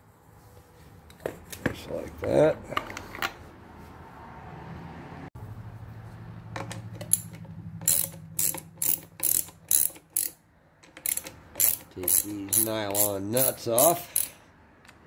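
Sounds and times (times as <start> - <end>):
socket ratchet clicking: 6.6 - 15.0.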